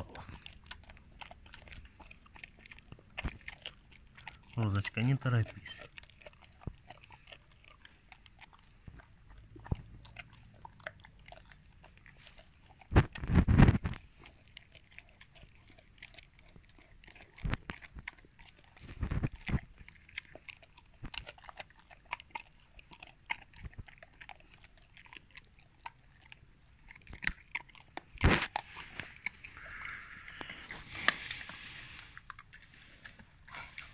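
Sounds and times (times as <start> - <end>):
bone cracking: 0.0 - 33.9
dog chewing a bone: 0.0 - 33.9.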